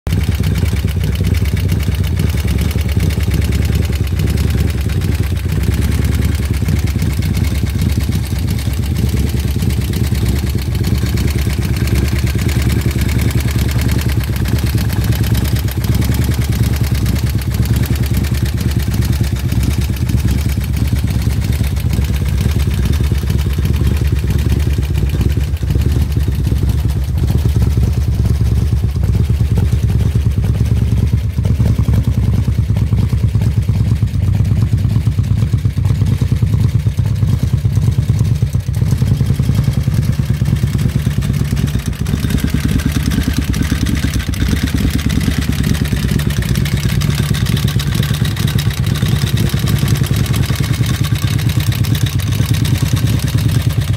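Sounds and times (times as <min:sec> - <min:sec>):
motorcycle engine idling: 0:00.0 - 0:53.9.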